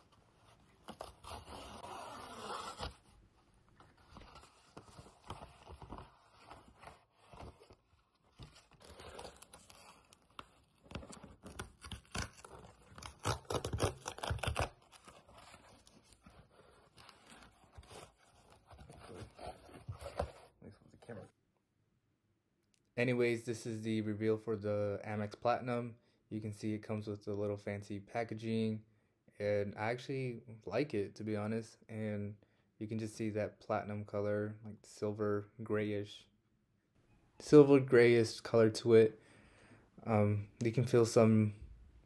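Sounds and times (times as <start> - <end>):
envelope tearing: 8.6 - 15.9
cardboard scraping and rustling: 14.1 - 20.5.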